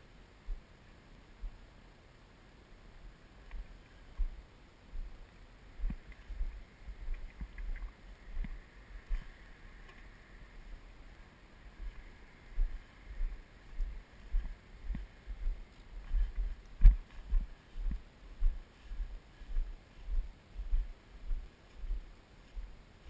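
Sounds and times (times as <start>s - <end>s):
low rumbling wind: 0.0s - 23.0s
faint high ticks: 3.4s - 4.4s, 5.0s - 10.1s.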